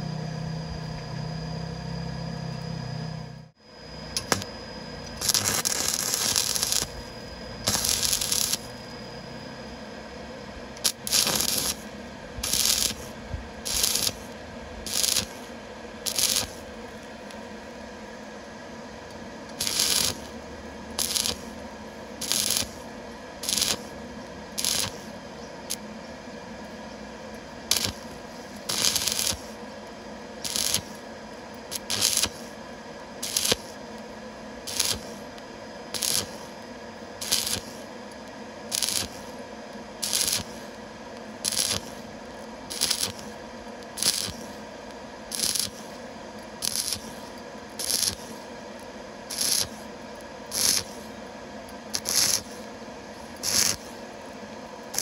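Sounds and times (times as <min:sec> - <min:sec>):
welding arc crackling hiss: 0:04.2 - 0:08.8, 0:10.7 - 0:17.4, 0:19.5 - 0:25.8, 0:27.6 - 0:29.6, 0:30.4 - 0:37.9, 0:38.6 - 0:46.0, 0:46.6 - 0:54.2.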